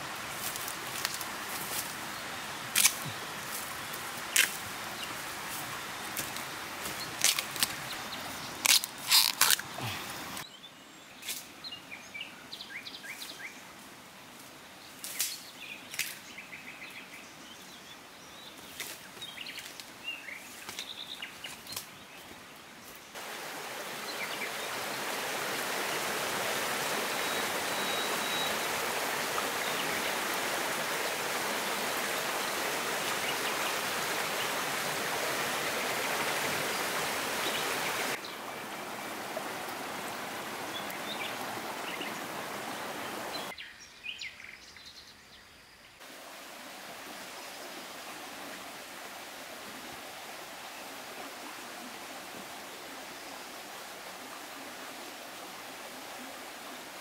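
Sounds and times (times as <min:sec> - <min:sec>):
steady outdoor hiss: 0:00.0 - 0:57.0
running water: 0:18.6 - 0:43.5, 0:46.0 - 0:57.0.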